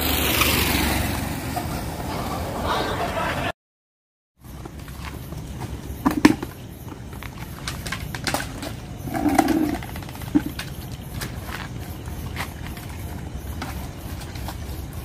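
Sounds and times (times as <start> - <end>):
plates and bucket clattering: 8.3 - 10.6.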